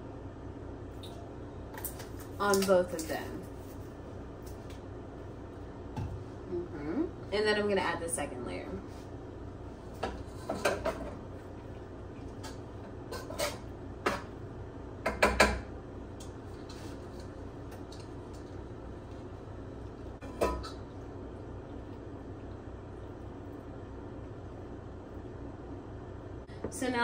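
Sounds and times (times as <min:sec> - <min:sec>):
metal spoon scraping a pan: 0:13.1 - 0:13.7.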